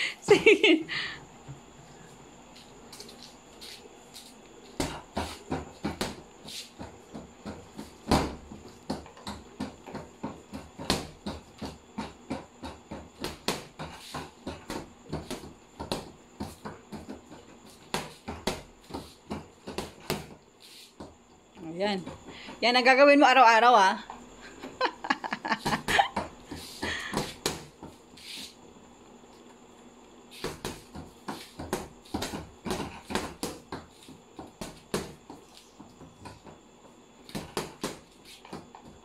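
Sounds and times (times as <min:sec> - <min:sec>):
punches and kicks thudding on bag: 0:07.5 - 0:09.1, 0:10.6 - 0:11.4, 0:30.4 - 0:33.8.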